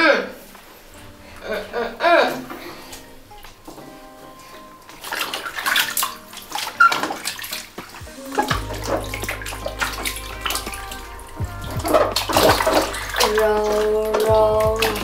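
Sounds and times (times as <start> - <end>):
water splashing in a plastic bathtub: 4.9 - 15.0.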